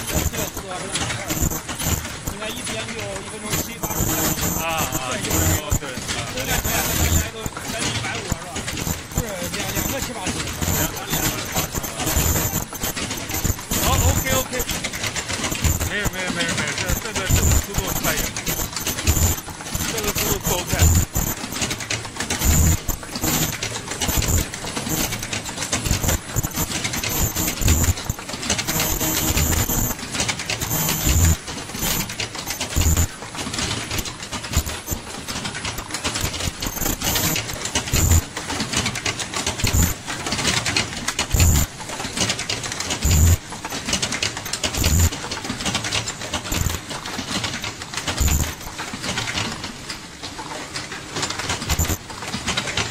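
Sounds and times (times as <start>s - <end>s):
short high-pitched tones: 0.0s - 2.7s, 3.5s - 21.7s, 22.3s - 30.0s, 30.6s - 33.1s, 36.2s - 38.2s
machine clattering fast: 0.0s - 52.9s.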